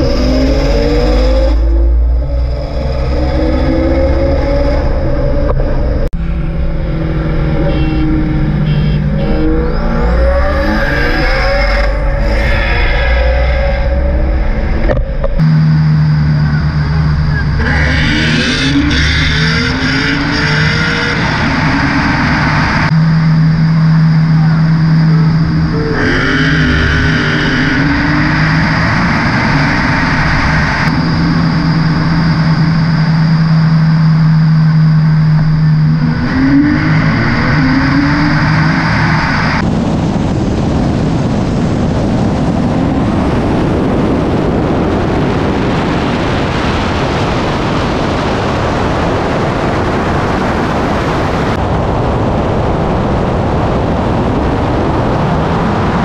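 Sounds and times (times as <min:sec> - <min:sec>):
car engine accelerating: 0:00.0 - 0:56.0
wind and road noise: 0:00.0 - 0:56.0.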